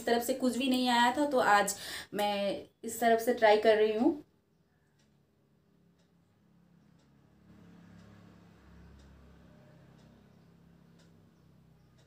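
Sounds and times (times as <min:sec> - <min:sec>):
faint tick: 0:04.8 - 0:12.0.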